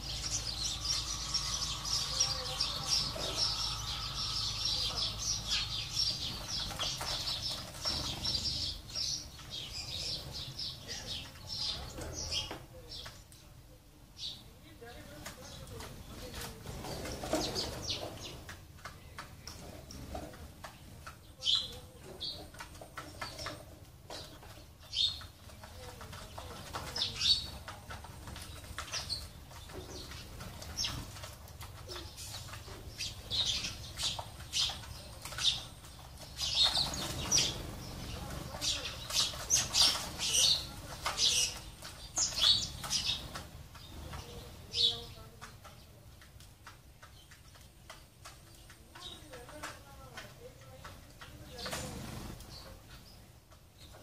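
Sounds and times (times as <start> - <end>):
sparrows chirping: 0.0 - 54.0
wings flapping: 25.6 - 53.0.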